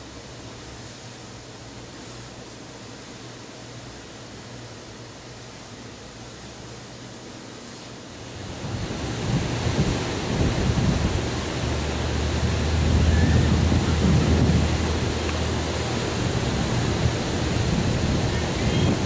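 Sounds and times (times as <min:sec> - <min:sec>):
surf breaking on beach: 0:08.3 - 0:19.0
wind buffeting microphone: 0:08.4 - 0:19.0.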